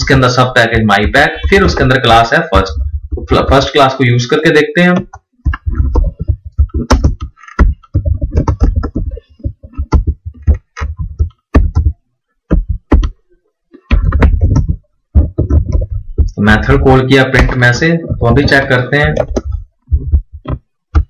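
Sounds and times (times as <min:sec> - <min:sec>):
typing on a computer keyboard: 0:13.9 - 0:16.0.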